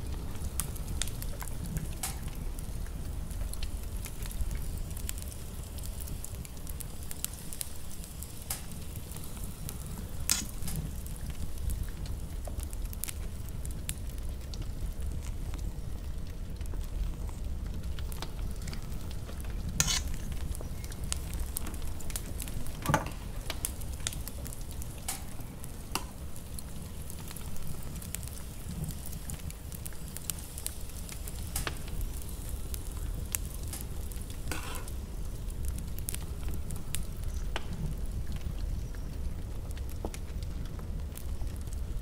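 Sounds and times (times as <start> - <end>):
spatula stirring and scraping bowl: 19.8 - 20.2, 34.5 - 34.9.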